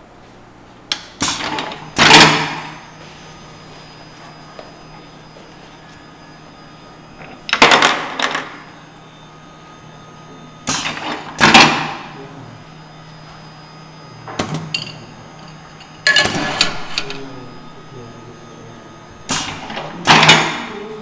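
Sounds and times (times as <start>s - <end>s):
conveyor hum: 0.0s - 21.0s
pneumatic cylinders clacking: 0.9s - 2.8s, 10.6s - 12.1s, 14.4s - 17.2s, 19.2s - 20.7s.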